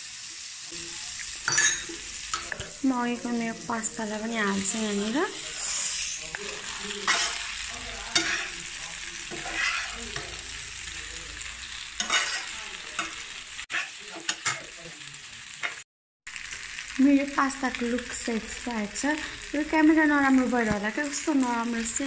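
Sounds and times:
steady sizzle: 0.0 - 22.0
metal spatula scraping pan: 4.1 - 10.6, 11.8 - 14.7.

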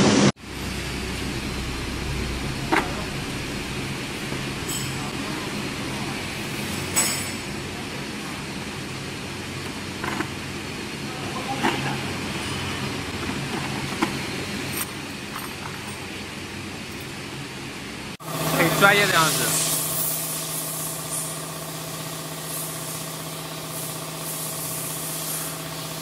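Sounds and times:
workshop hum: 0.0 - 26.0
parts clinking on table: 4.6 - 5.1, 6.9 - 7.5, 11.6 - 16.1.

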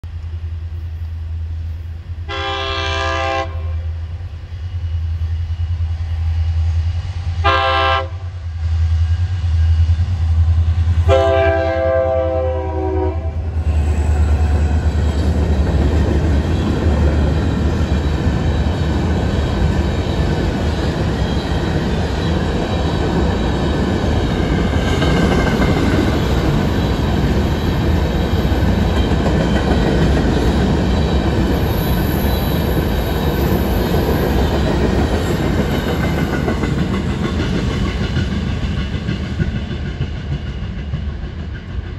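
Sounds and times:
freight train rumbling past: 0.0 - 41.9
locomotive air horn: 2.3 - 3.9, 7.4 - 8.3, 11.0 - 13.5.

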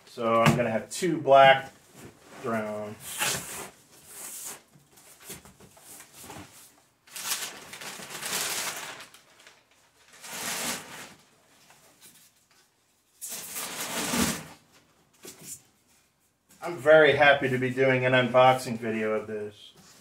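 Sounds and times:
packing paper rustling: 3.1 - 12.6.

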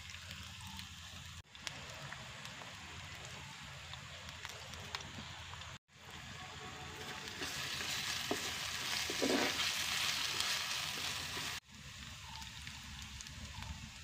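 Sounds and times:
wood fire crackling: 0.0 - 14.0
onions sizzling in a pot: 0.3 - 14.0
wooden spoon scraping: 7.0 - 10.4.

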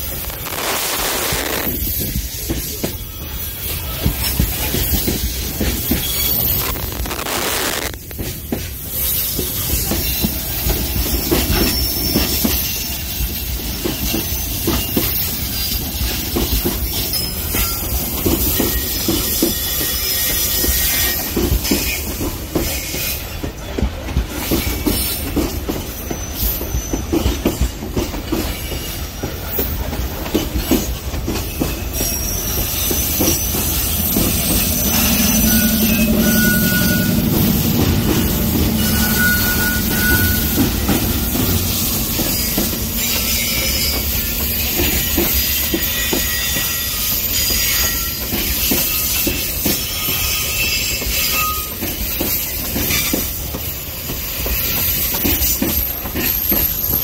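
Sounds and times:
high-pitched wheel squeals: 0.0 - 13.3, 16.8 - 22.1, 30.6 - 53.2
freight wagons rumbling: 21.3 - 46.7.

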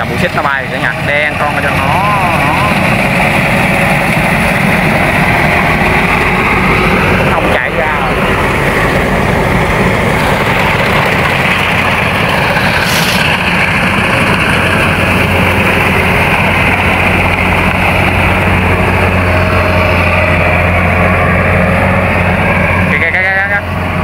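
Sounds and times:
combine harvester running: 0.0 - 24.0
brief hiss: 12.8 - 13.2.

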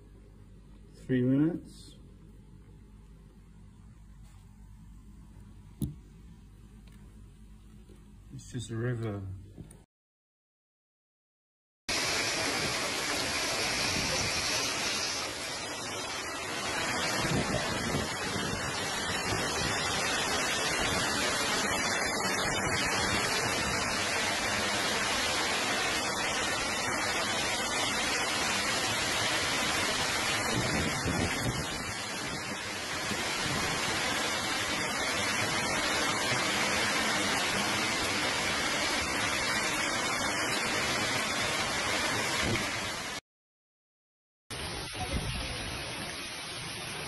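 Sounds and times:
torrential rain and hail: 11.9 - 43.2, 44.5 - 47.0.

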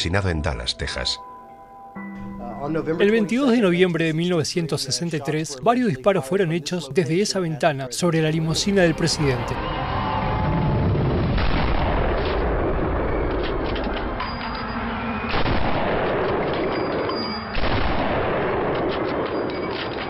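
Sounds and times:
rumbling echo: 9.4 - 19.2
rifle shots: 11.4 - 14.2, 15.3 - 20.0.

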